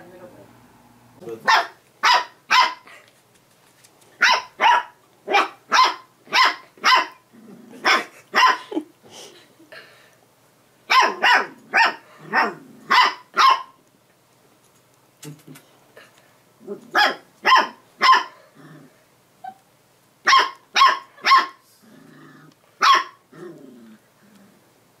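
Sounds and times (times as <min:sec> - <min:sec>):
puppy barking: 0:01.4 - 0:02.9, 0:04.2 - 0:07.2, 0:07.8 - 0:08.8, 0:10.9 - 0:13.8, 0:16.8 - 0:18.4, 0:20.2 - 0:21.6, 0:22.8 - 0:23.2.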